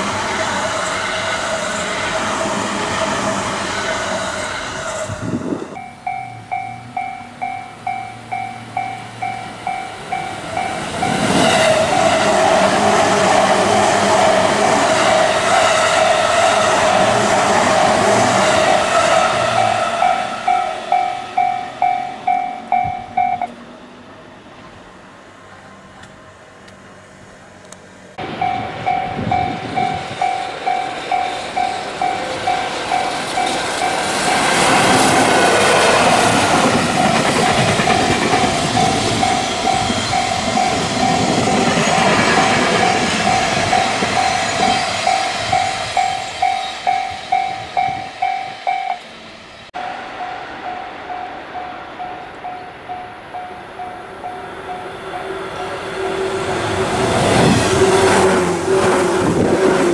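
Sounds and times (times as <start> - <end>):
freight train rail noise: 0.0 - 59.9
level crossing bell ringing: 5.8 - 11.2, 19.6 - 23.5, 28.2 - 34.8, 42.7 - 49.1.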